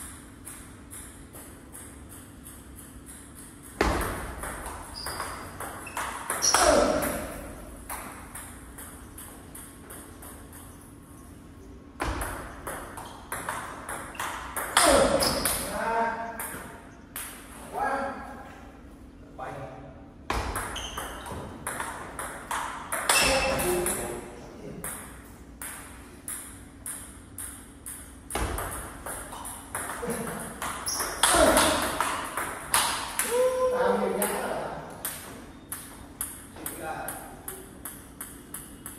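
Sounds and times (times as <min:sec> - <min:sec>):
table tennis ball hits: 0:00.0 - 0:10.8, 0:12.0 - 0:15.8, 0:20.3 - 0:38.9
table tennis ball clicking: 0:37.1 - 0:38.9.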